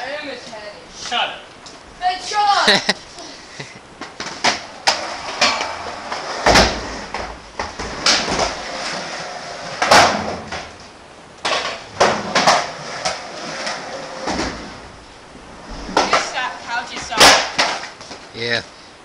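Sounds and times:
skateboard wheels rolling: 0:04.0 - 0:18.3
skateboard clacking on ramp: 0:15.9 - 0:18.0.

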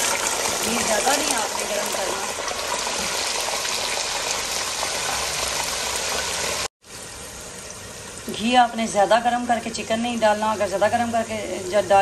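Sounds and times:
chicken sizzling in hot fat: 0:00.0 - 0:08.5.

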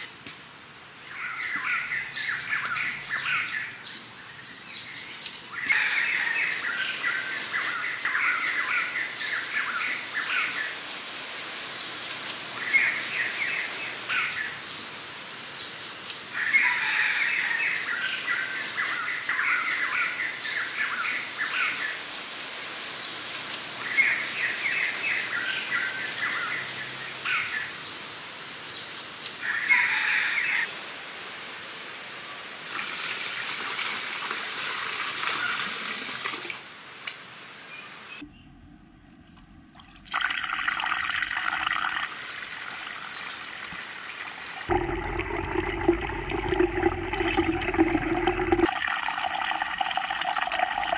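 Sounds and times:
water pouring into pond: 0:32.6 - 0:36.7, 0:39.1 - 0:50.9.

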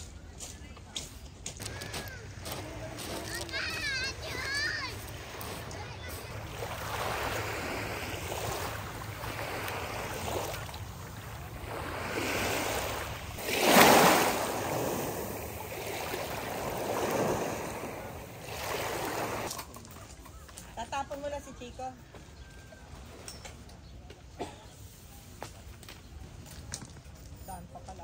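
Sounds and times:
sea waves washing onto beach: 0:01.0 - 0:19.6.

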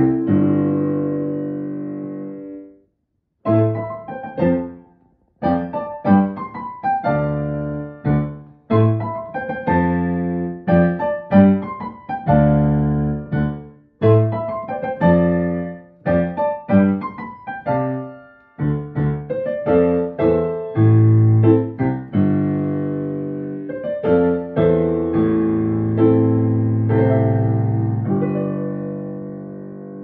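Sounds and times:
piano notes and chords: 0:00.0 - 0:02.8, 0:03.4 - 0:30.0.

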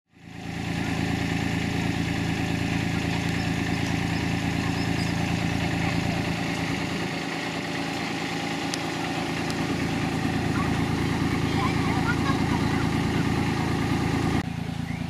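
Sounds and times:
locomotive engine running: 0:00.1 - 0:15.0.

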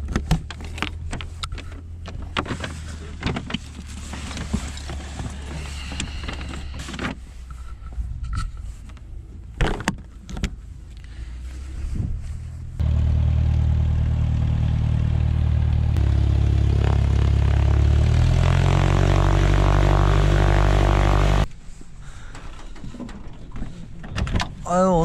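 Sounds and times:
small plane engine and propeller: 0:12.8 - 0:21.5
knocks and clatters: 0:22.2 - 0:24.6.

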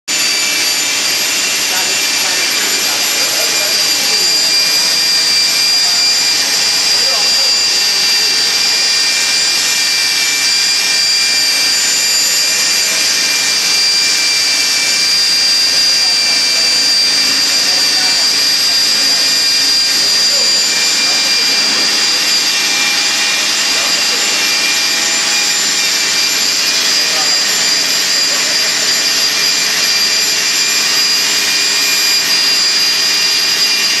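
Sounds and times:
electric drill whining: 0:00.1 - 0:34.0.

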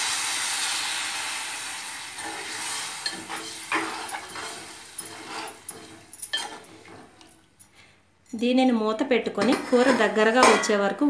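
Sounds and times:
spoon scraping metal pot: 0:02.2 - 0:07.4, 0:09.4 - 0:10.5.

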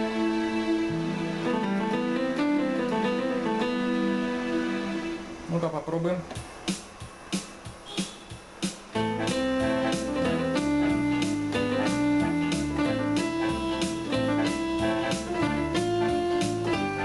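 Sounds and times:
synthesizer melody: 0:00.0 - 0:05.7, 0:08.9 - 0:17.0
steady beat: 0:06.3 - 0:17.0.

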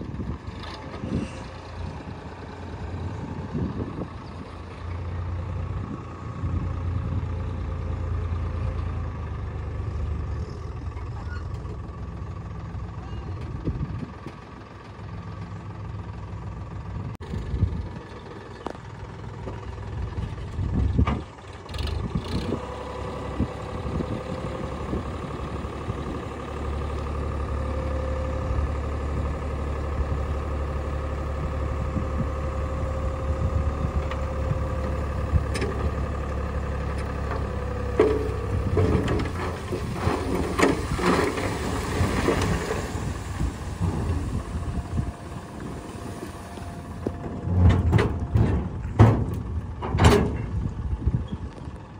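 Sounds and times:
tractor engine running: 0:00.0 - 0:51.9
soil sliding out clattering: 0:37.0 - 0:50.8.

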